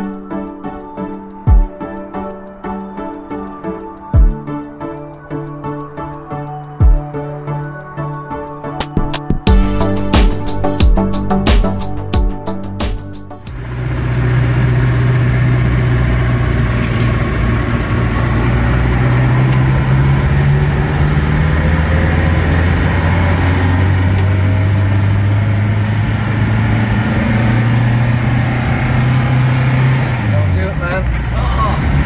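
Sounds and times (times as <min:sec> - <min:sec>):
diesel van engine running: 0:09.5 - 0:32.0
road noise: 0:09.6 - 0:32.0.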